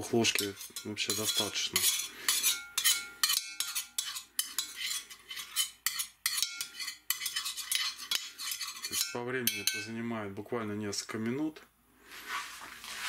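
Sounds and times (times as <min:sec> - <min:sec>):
spoon scraping cast-iron pan: 0:00.0 - 0:10.0.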